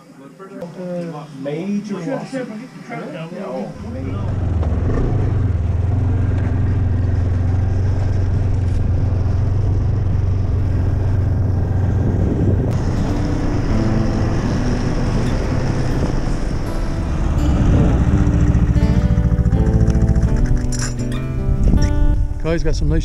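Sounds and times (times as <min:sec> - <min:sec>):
snowmobile engine running: 0:03.8 - 0:20.8.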